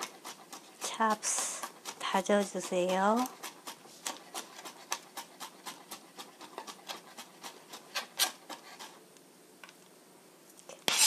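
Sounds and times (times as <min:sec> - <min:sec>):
knife chopping on cutting board: 0:00.0 - 0:08.9.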